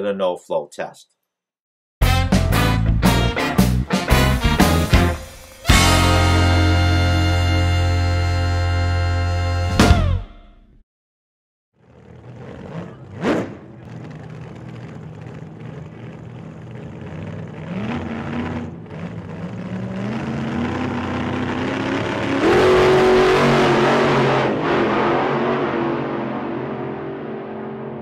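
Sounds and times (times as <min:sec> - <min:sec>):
engine revving up: 0:04.0 - 0:10.2, 0:11.8 - 0:28.0.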